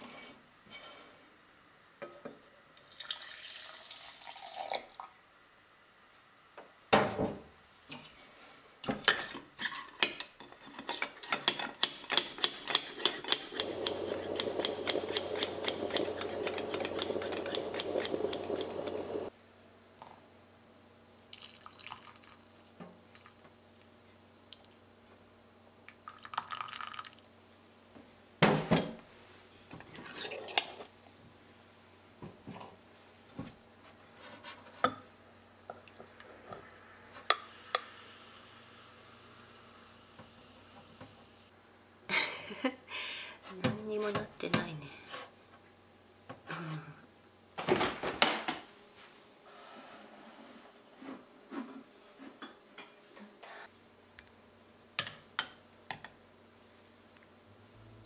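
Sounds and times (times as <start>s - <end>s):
milk pouring into glass: 2.8s - 5.1s, 21.1s - 23.3s, 26.0s - 27.3s
milk frother clicking and rattling: 11.8s - 19.3s
moka pot sputtering: 11.8s - 19.3s.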